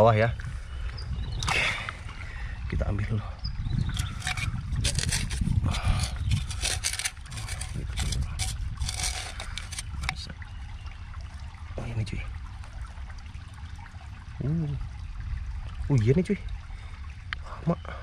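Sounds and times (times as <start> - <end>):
rock and soil scraping: 3.9 - 10.2.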